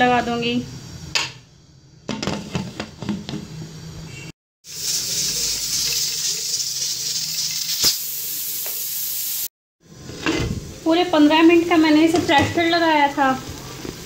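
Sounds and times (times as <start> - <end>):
steam hissing from valve: 4.6 - 9.5.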